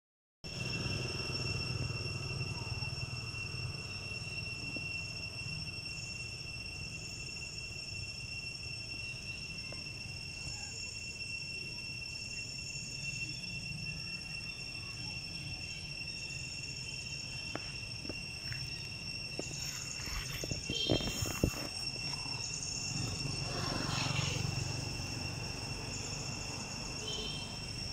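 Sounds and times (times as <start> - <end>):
insects droning: 0.4 - 27.9
clicks and scuffs: 19.4 - 22.3.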